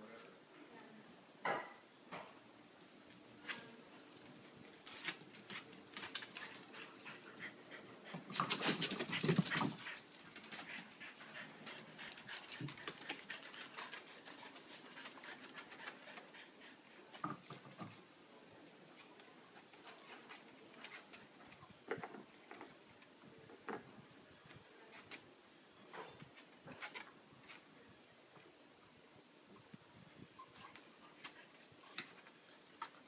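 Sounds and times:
dogs scuffling and play-wrestling: 3.4s - 18.2s, 18.8s - 25.2s.

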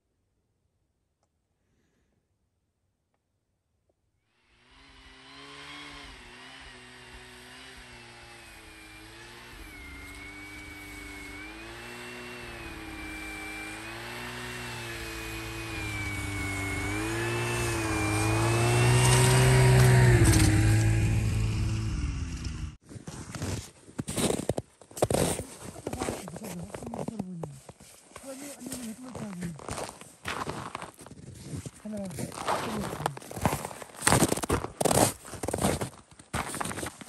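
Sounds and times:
vehicle engine revving: 4.6s - 22.8s.

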